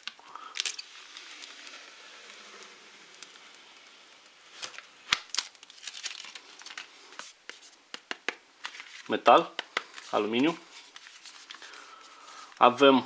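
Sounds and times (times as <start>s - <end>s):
plastic film crackling: 0.0s - 7.6s, 8.6s - 12.8s.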